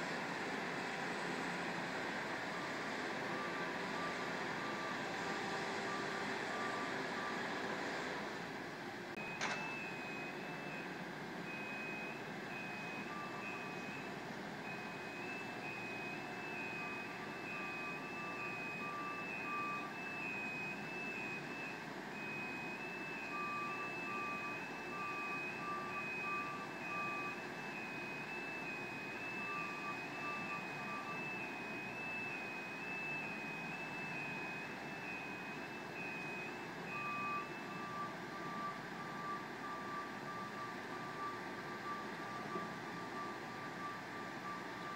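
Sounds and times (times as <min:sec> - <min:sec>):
steady background hum: 0:00.0 - 0:44.9
high backup alarm beep: 0:09.2 - 0:44.9
lower quicker alarm beep: 0:11.5 - 0:44.9.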